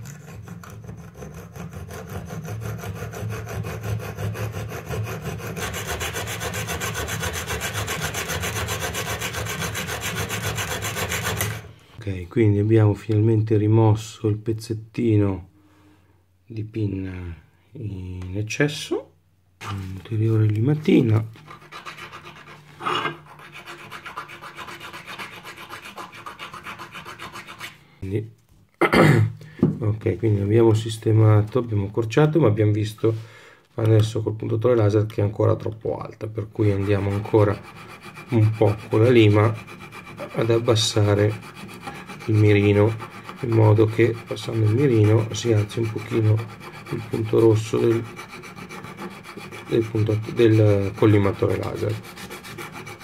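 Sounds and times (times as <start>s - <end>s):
hacksaw sawing metal: 0.0s - 11.7s, 21.3s - 27.8s, 36.6s - 53.0s
hand file rasping on metal: 0.0s - 11.7s, 20.8s - 27.8s, 36.6s - 53.0s.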